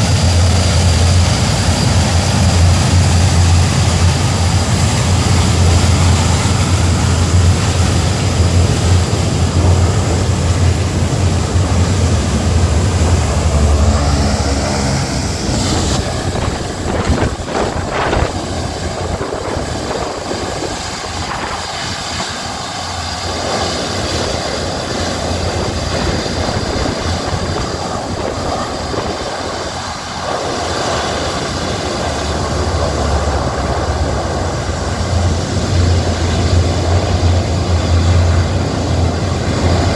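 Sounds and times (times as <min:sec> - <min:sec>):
deep propeller drone: 0:00.0 - 0:39.9.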